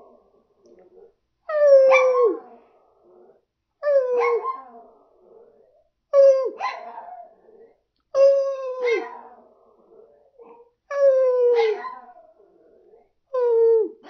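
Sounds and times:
dog howling woo: 0:01.5 - 0:02.6.

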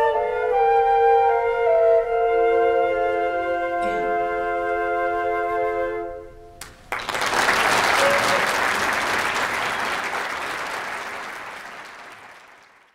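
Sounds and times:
audience applause: 0:06.6 - 0:12.9.

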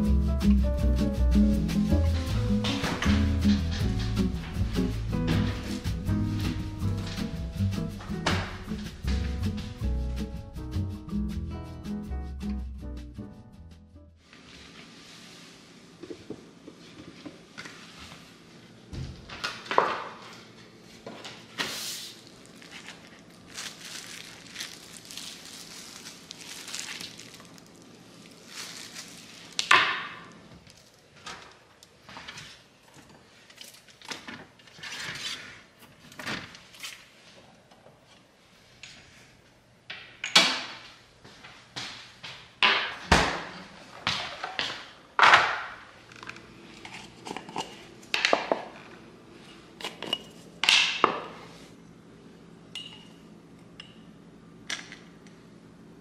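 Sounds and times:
paper rustling: 0:21.6 - 0:29.7
glass jars clinking: 0:49.9 - 0:50.4.

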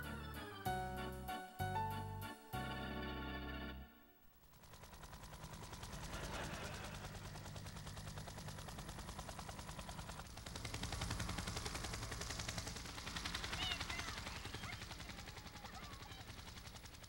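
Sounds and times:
helicopter rotor chopping: 0:04.3 - 0:17.0.

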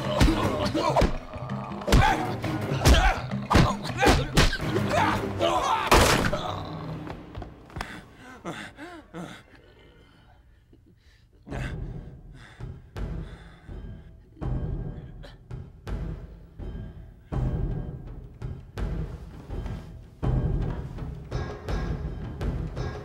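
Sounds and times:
grunts: 0:00.0 - 0:07.1, 0:07.8 - 0:12.2
pained groaning: 0:00.0 - 0:07.2, 0:07.8 - 0:15.6
dramatic music score: 0:00.0 - 0:10.4, 0:11.4 - 0:23.0.

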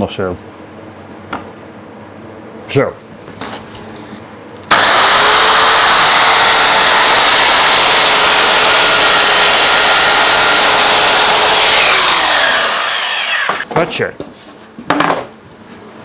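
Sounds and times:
circular saw cutting board: 0:04.7 - 0:13.7.

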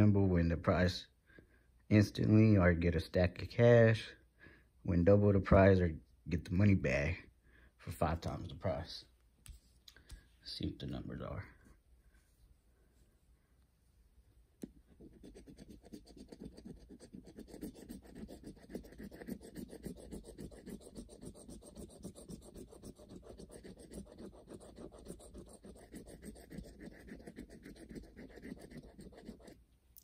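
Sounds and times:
coin scratching lottery ticket: 0:15.0 - 0:29.6.

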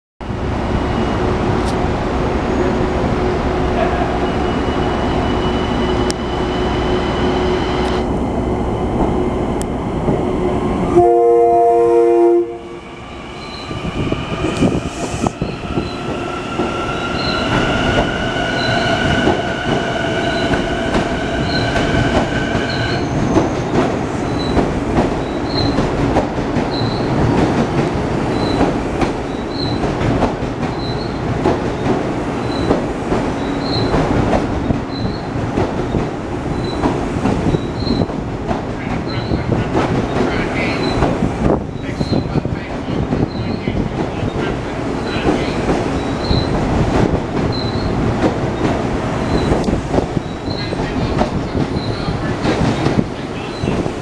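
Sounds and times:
electric train hum: 0:00.2 - 0:54.0
train horn blast: 0:10.9 - 0:12.8.

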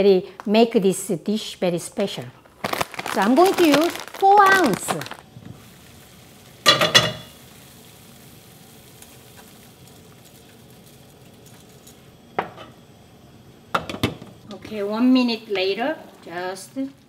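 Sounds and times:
water boiling in pot: 0:02.0 - 0:17.0
glass lid clanking on pot: 0:06.7 - 0:07.3.

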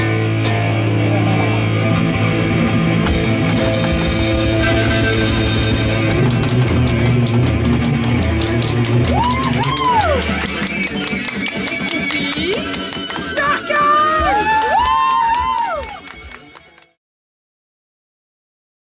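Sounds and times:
electric bass low notes: 0:00.0 - 0:11.0
drums: 0:00.0 - 0:16.6.

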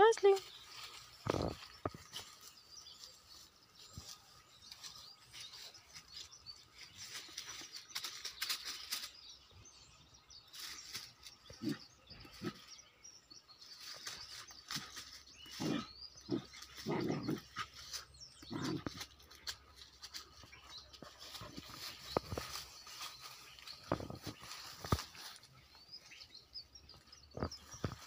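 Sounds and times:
dry leaves crackling underfoot: 0:00.0 - 0:09.4, 0:10.4 - 0:12.5, 0:13.6 - 0:28.0
dog play growling: 0:16.8 - 0:17.5.

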